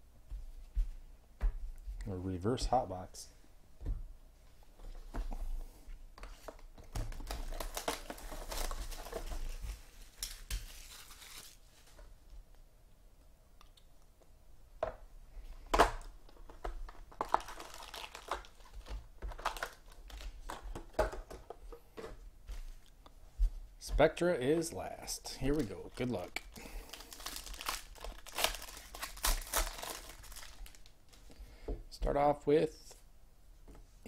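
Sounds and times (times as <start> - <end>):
plastic wrapping crinkling and tearing: 6.9 - 12.0, 16.6 - 20.8, 25.2 - 31.3.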